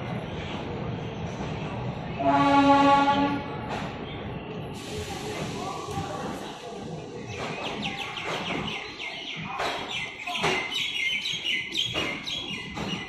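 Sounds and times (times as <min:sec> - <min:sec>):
moving train rumble: 0:00.0 - 0:13.0
small birds chirping: 0:06.4 - 0:13.0.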